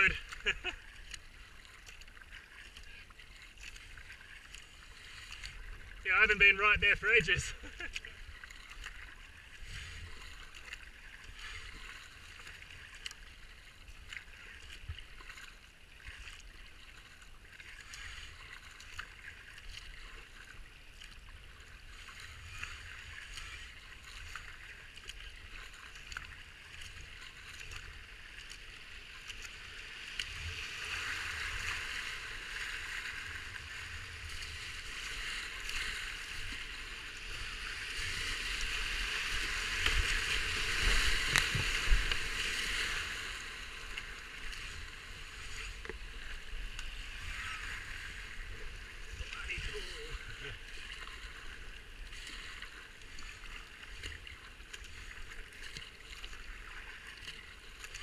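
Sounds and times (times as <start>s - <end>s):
whitewater rapids rushing: 0.0s - 0.3s
river water rushing: 0.0s - 16.4s, 21.6s - 58.0s
paddle strokes splashing: 0.0s - 58.0s.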